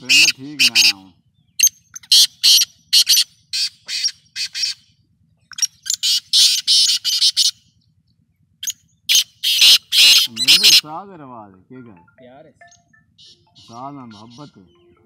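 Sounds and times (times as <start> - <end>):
francolin calling harsh rasping notes: 9.1 - 10.9.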